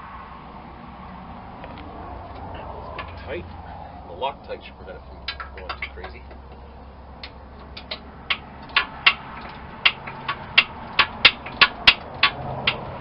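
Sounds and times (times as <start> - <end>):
ratchet wrench clicking: 7.2 - 13.0.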